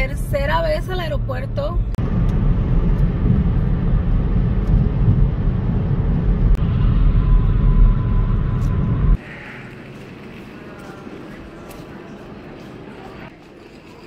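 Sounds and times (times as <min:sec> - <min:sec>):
car interior road rumble: 0:00.0 - 0:09.2.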